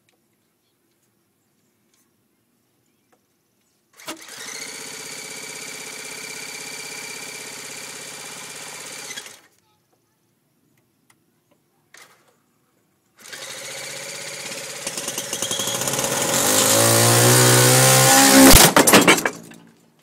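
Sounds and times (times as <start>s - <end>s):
electric starter whirring: 4.0s - 9.5s, 13.2s - 19.6s
model airplane engine revving: 4.0s - 9.5s, 13.2s - 18.8s
loud clattering and banging: 14.9s - 19.8s.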